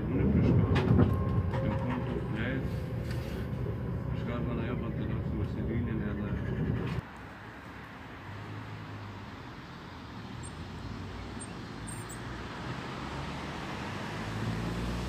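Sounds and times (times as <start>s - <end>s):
vehicle engine and road hum: 0.0s - 15.0s.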